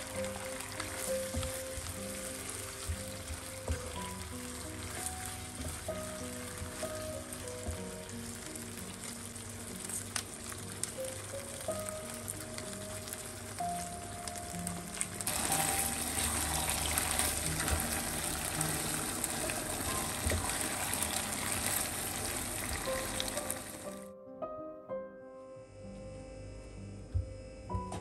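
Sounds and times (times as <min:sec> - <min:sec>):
sausage sizzling in a frying pan: 0:00.0 - 0:24.0
soft background music: 0:00.0 - 0:28.0.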